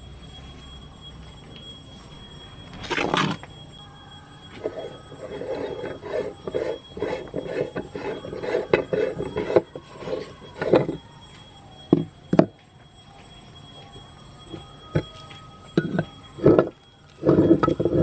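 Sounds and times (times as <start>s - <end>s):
metal threads grating: 4.6s - 11.0s, 15.8s - 18.0s.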